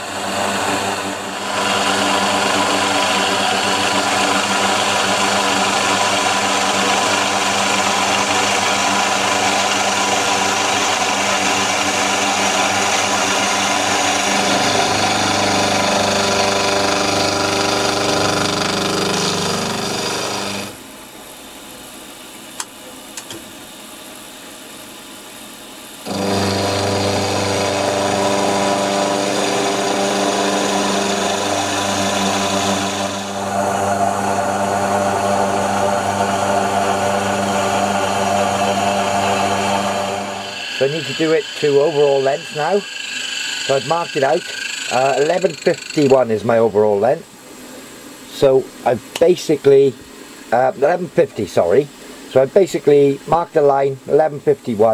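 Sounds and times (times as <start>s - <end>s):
milling machine cutting metal: 0.0s - 20.8s, 26.0s - 46.5s.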